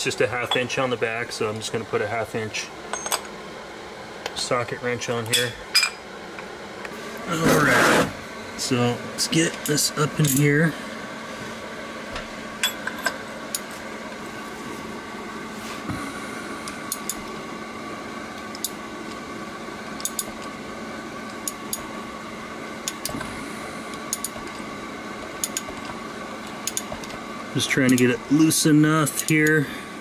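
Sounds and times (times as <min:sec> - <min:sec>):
heater fan humming: 0:00.0 - 0:30.0.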